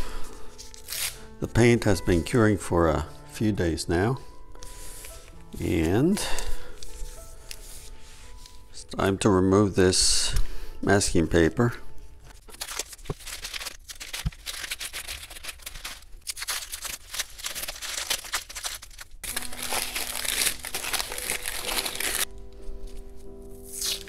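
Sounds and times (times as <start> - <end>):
background music: 0.0 - 13.7, 17.6 - 24.0
masking paper tearing: 0.6 - 1.3, 12.4 - 22.3, 23.5 - 24.0.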